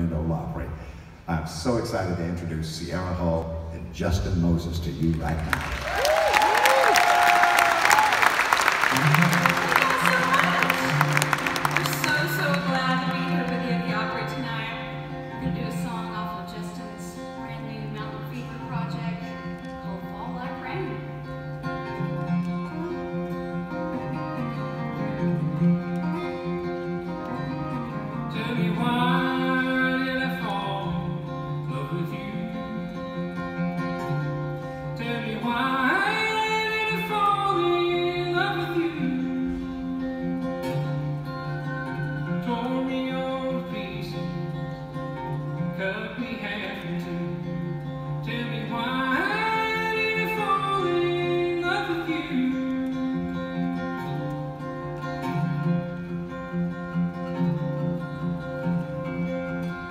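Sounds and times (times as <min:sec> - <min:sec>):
acoustic guitar picking: 0:08.8 - 0:59.9
person singing: 0:08.9 - 0:15.6, 0:28.2 - 0:33.3, 0:34.9 - 0:40.2, 0:41.5 - 0:53.6.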